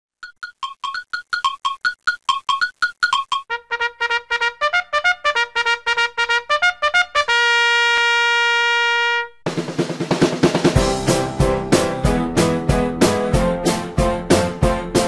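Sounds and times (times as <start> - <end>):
staccato brass intro music: 3.5 - 15.0
drums: 9.4 - 15.0.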